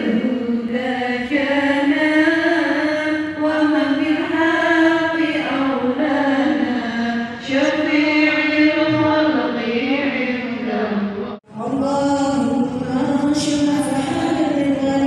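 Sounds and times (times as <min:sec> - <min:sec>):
women chanting: 0:00.0 - 0:15.0.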